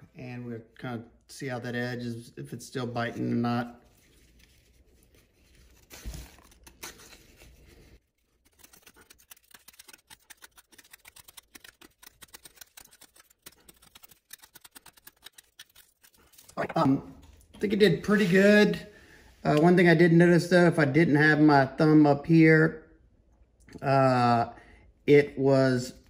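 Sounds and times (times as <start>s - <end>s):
knife shaving wood: 3.8s - 16.8s.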